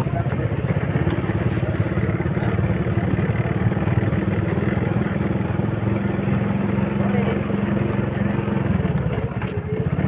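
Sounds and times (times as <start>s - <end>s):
motorcycle engine putter: 0.0s - 4.8s, 8.6s - 10.0s.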